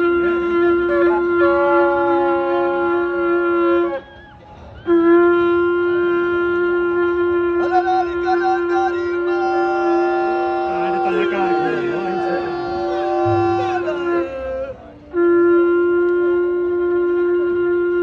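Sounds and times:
wind instrument melody: 0.0 - 18.0
steady drone note: 9.5 - 14.7.

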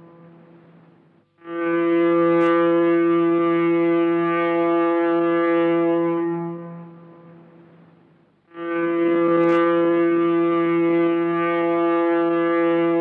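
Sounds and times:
foghorn blast: 1.4 - 7.7, 8.5 - 13.0.

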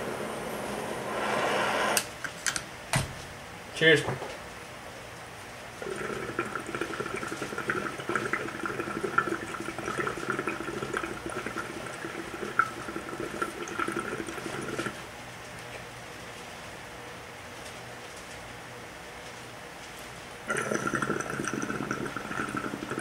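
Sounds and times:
water pipe bubbling: 5.8 - 15.0, 20.5 - 23.0.

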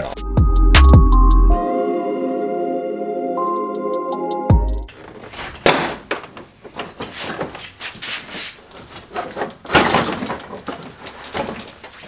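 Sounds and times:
plastic bumper cover rattling: 8.8 - 12.0.

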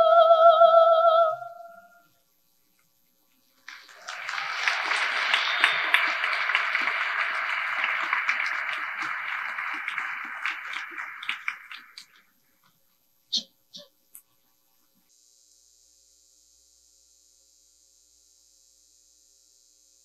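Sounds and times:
audience applauding: 3.6 - 12.2.

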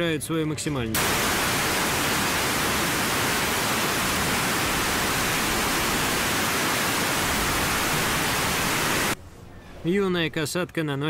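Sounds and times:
steady hiss: 1.0 - 9.2.

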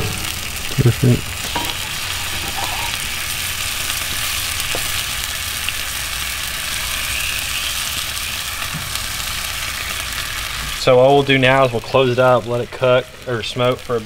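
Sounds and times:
sauce sizzling on hot grill: 0.0 - 14.0.

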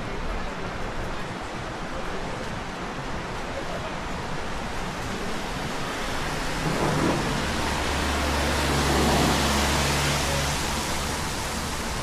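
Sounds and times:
falling water rushing: 4.8 - 12.0.

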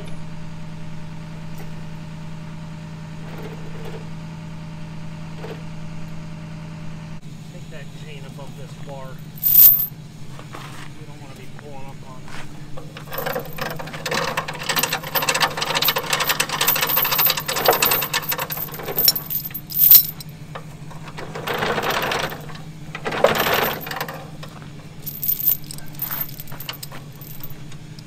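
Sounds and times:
steel chains rattling and clinking: 9.4 - 9.9, 12.8 - 27.6.

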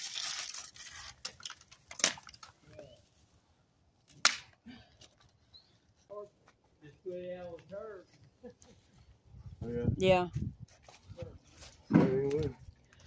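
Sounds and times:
wood cracking: 0.0 - 2.6
branches and leaves rustling: 0.0 - 13.0.

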